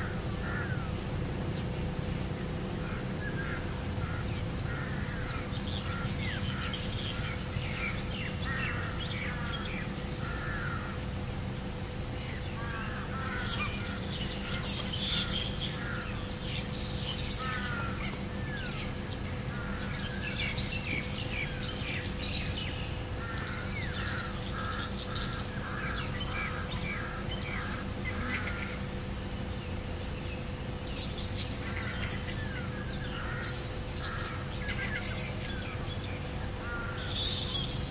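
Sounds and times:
flying foxes squawking and screeching: 0:00.0 - 0:01.0, 0:02.8 - 0:11.0, 0:12.2 - 0:29.0, 0:30.7 - 0:37.9.

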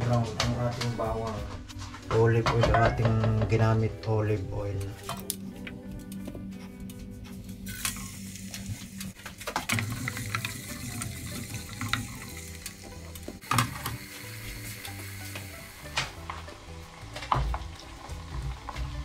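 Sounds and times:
garlic sizzling in hot oil: 0:07.7 - 0:19.0.

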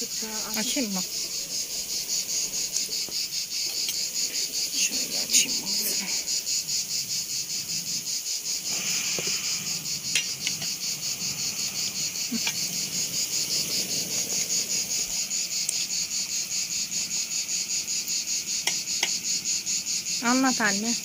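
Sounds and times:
insects chirping: 0:00.0 - 0:21.0
dough deep-frying in hot oil: 0:15.1 - 0:21.0.

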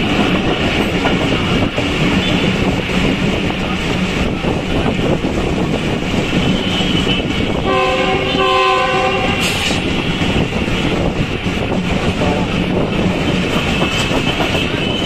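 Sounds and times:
rushing wind: 0:00.0 - 0:15.0
train clattering on rails: 0:00.0 - 0:15.0
train horn chord: 0:07.6 - 0:09.8.

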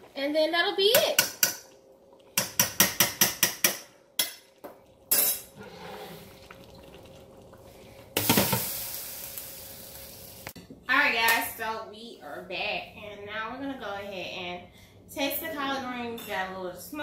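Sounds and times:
hiss: 0:08.2 - 0:10.6.

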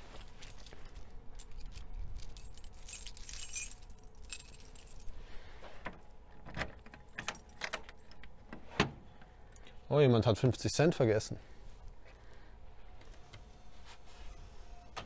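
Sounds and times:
keys jangling on a ring: 0:00.0 - 0:05.2, 0:06.7 - 0:08.2.

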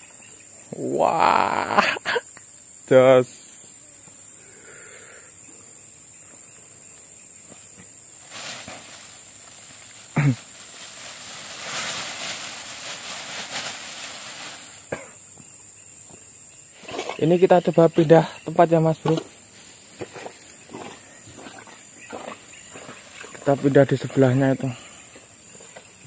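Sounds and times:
high insect drone: 0:00.0 - 0:26.0
plastic bag crinkling: 0:08.2 - 0:14.9.

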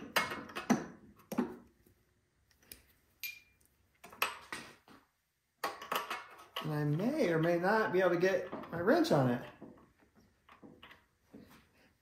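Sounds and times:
metal hand tools clinking: 0:03.2 - 0:04.5.

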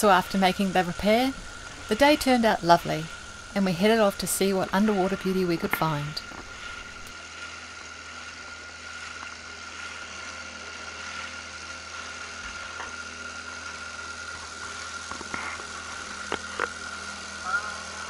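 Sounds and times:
boat engine humming: 0:00.0 - 0:18.0.

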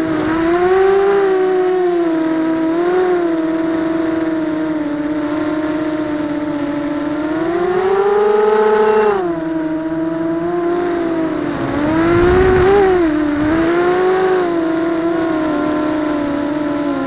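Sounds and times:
drone motors and propellers whining: 0:05.1 - 0:17.0
low rush of air: 0:10.9 - 0:14.6.

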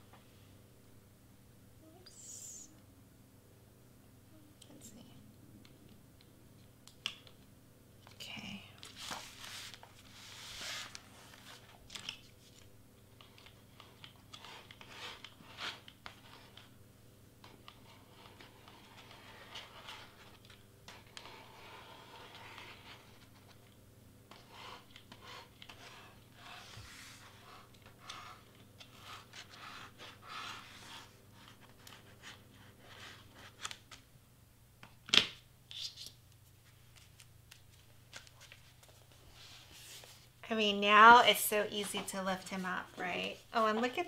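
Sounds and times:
cardstock rustling and crinkling: 0:08.8 - 0:16.7.

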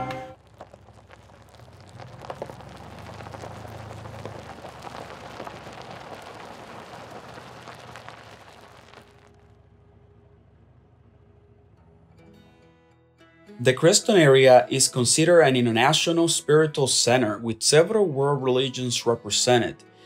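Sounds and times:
wind: 0:00.0 - 0:12.3
tyre hiss on wet road: 0:00.4 - 0:09.3.

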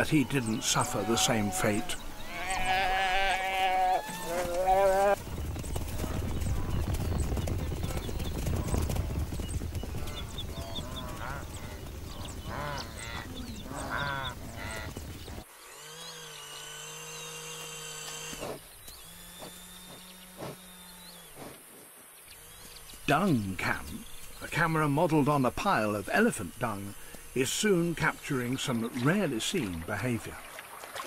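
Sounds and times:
wildebeest calling: 0:00.0 - 0:05.2
rumble of hooves: 0:00.0 - 0:15.5.

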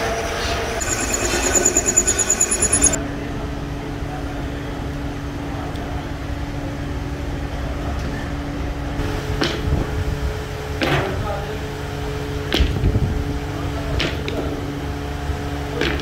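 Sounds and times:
machinery low rumble: 0:00.0 - 0:15.8
constant machine hum: 0:00.0 - 0:16.0.

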